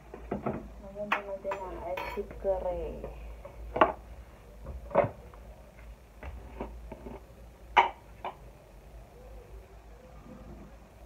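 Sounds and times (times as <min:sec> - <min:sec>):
plastic containers knocking and clattering: 0:00.1 - 0:00.7.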